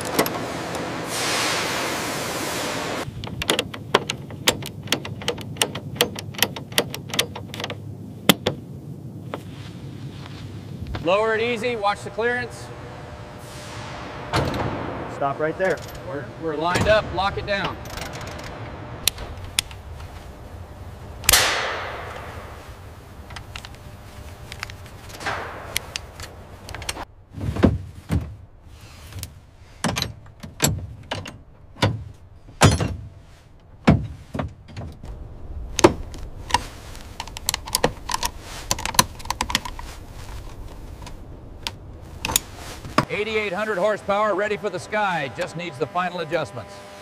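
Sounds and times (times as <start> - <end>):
hissing rush: 0.0 - 3.1, 9.3 - 27.3, 34.9 - 46.2
hand tools clattering on metal: 15.4 - 18.6.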